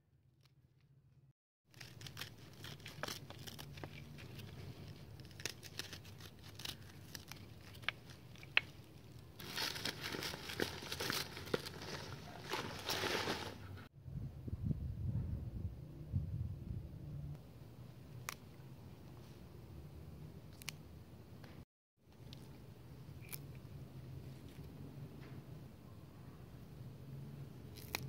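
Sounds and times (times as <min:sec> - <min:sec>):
dry roots crackling and rustling: 0:01.7 - 0:13.9
knife snipping scallion roots: 0:27.7 - 0:28.0.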